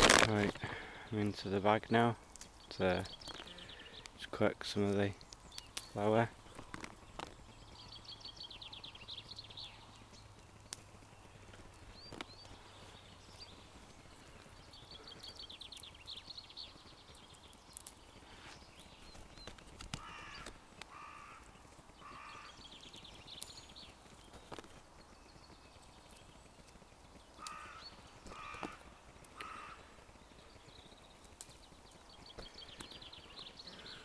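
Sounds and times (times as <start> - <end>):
hands picking flowers off bush: 0.0 - 0.8
crows cawing: 20.0 - 22.6, 27.3 - 30.1.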